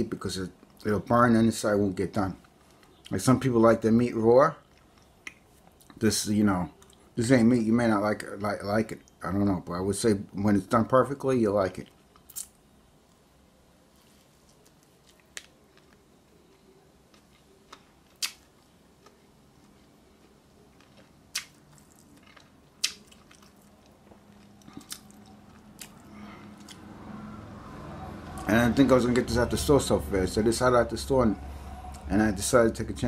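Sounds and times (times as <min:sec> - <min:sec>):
person chewing: 0:14.0 - 0:27.2
wet mouth clicks and smacks: 0:21.3 - 0:22.0.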